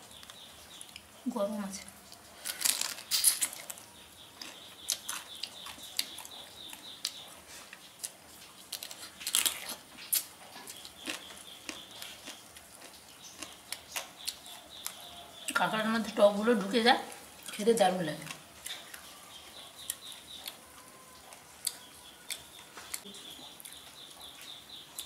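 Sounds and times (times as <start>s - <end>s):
crab shell cracking and crunching: 2.1s - 3.8s, 8.7s - 15.0s.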